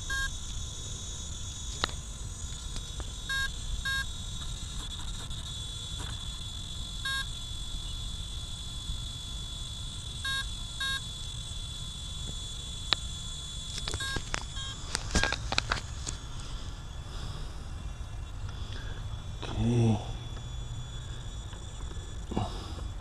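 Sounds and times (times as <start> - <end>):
short electronic beeps: 0.0 - 0.4, 3.3 - 4.1, 7.0 - 7.3, 10.2 - 11.0, 13.9 - 15.4.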